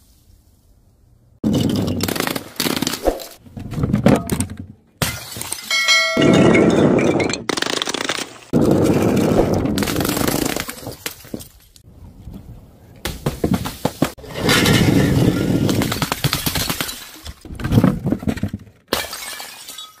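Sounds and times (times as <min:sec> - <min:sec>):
glass bottles smashing on stone: 0:05.0 - 0:07.5, 0:18.9 - 0:20.0.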